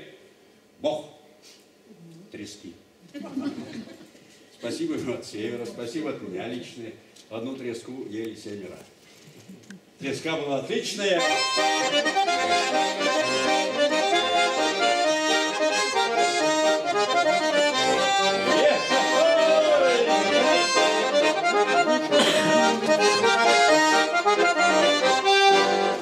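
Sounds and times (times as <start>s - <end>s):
button accordion folk tune: 11.0s - 26.0s.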